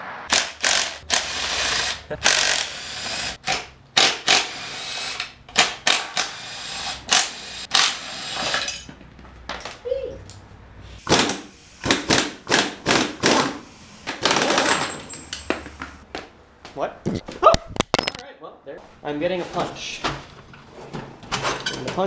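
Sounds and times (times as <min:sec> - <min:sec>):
metal tools clanking: 0:08.5 - 0:09.0, 0:14.3 - 0:15.7.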